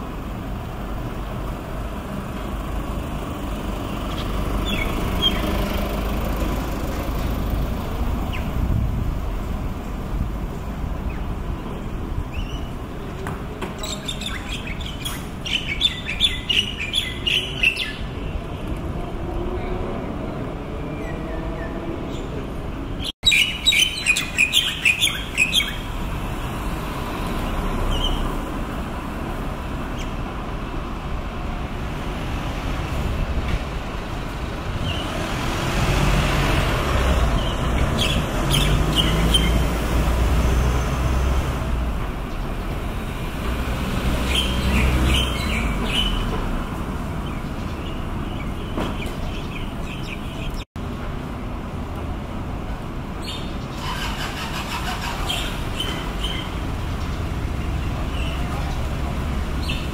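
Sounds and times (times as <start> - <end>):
vehicle rumbling past: 0.0 - 11.0, 25.2 - 50.4, 53.7 - 59.9
steady traffic hum: 0.0 - 59.9
birds chirping: 2.4 - 8.7, 9.8 - 18.8, 19.5 - 28.6, 34.8 - 35.3, 37.1 - 39.9, 44.1 - 50.7, 53.2 - 59.9.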